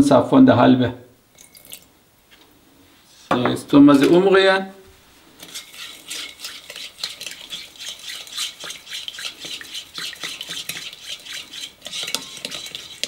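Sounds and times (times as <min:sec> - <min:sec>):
metal whisk clinking against glass: 0:05.5 - 0:13.0.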